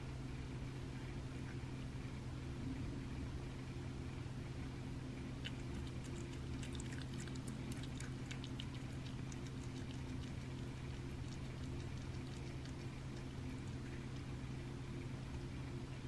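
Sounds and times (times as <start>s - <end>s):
steady low hum: 0.0s - 16.0s
cat eating wet food: 5.2s - 16.0s.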